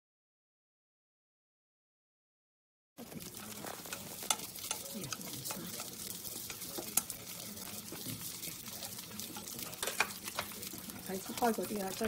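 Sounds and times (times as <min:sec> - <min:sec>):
food sizzling in broth: 0:03.0 - 0:12.0
utensil clicking against pan: 0:03.2 - 0:12.0.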